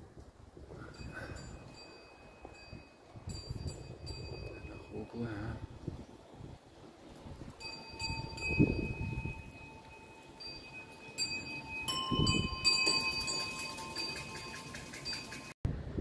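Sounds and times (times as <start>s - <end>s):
small metal bells ringing: 0.9s - 5.5s, 7.6s - 15.6s.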